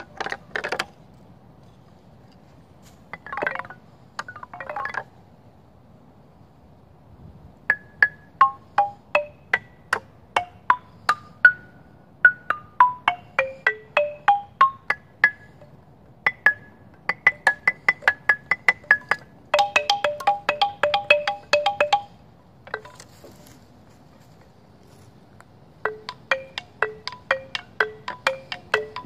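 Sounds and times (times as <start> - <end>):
xylophone played with mallets: 3.1 - 5.1, 7.7 - 23.0, 25.8 - 29.0.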